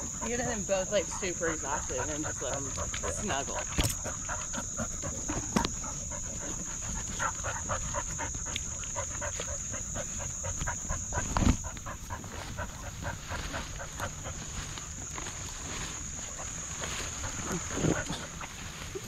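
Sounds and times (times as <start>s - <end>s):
dog panting: 0.0s - 15.0s, 16.0s - 19.0s
high insect whine: 0.0s - 19.0s.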